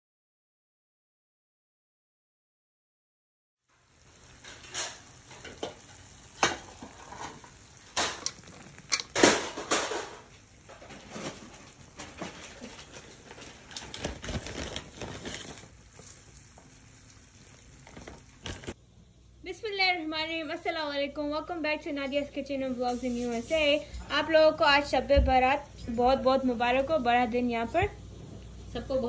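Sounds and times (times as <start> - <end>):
dishes clattering and knocking: 4.6 - 14.6.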